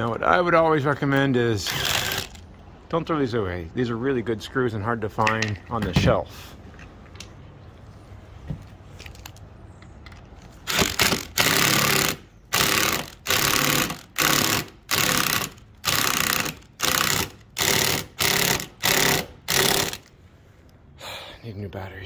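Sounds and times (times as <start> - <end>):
impact driver hammering: 10.7 - 20.0.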